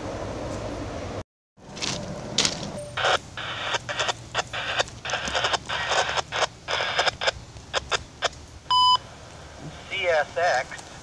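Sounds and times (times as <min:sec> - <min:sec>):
scanner radio static bursts: 0:02.8 - 0:11.0.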